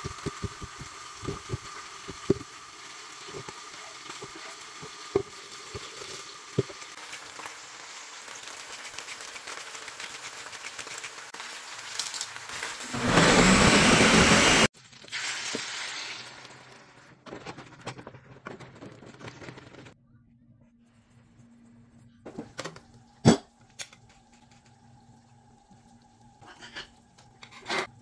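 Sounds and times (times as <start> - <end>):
blender running: 12.7 - 14.7.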